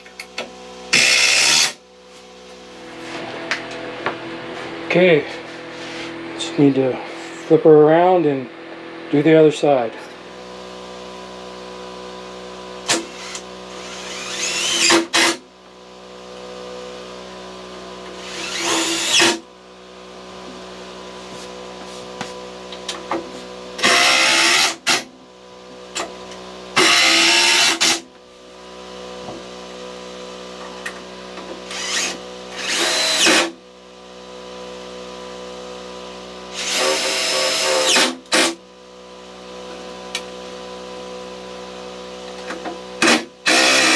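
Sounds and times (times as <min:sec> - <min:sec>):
cordless drill driving screws: 0:00.9 - 0:01.8, 0:12.9 - 0:15.4, 0:18.2 - 0:19.4, 0:23.8 - 0:25.0, 0:26.8 - 0:28.0, 0:31.7 - 0:33.5, 0:36.5 - 0:38.5, 0:43.0 - 0:43.9.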